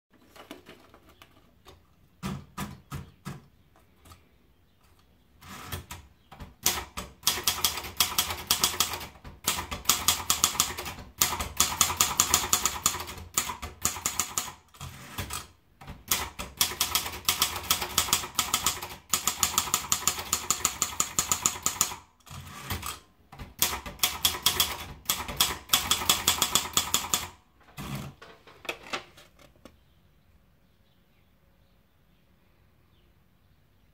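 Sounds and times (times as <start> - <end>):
typewriter clacks: 5.4 - 28.2
fast typewriter typing: 6.6 - 28.2.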